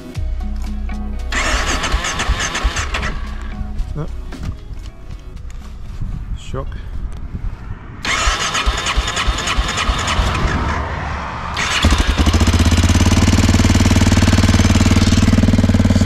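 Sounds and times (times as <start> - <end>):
motorcycle engine cranking: 1.3 - 3.5, 8.1 - 10.3
engine idling fast: 11.6 - 16.0.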